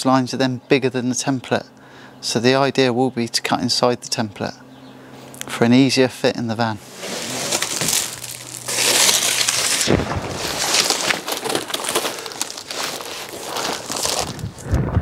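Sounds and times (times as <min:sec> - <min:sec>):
cardboard scraping over plywood: 0:06.8 - 0:14.6
cardboard rustling and crackling: 0:06.8 - 0:14.8.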